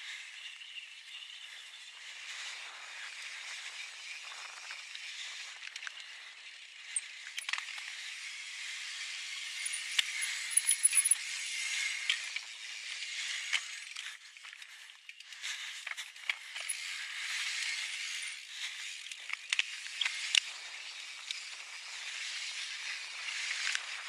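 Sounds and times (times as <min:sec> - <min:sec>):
bike chain and frame rattling: 0:09.4 - 0:11.3.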